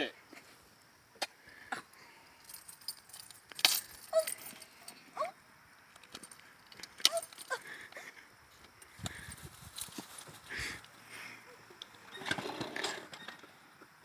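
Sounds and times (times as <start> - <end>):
keys jangling against can: 2.4 - 5.0, 6.1 - 7.6.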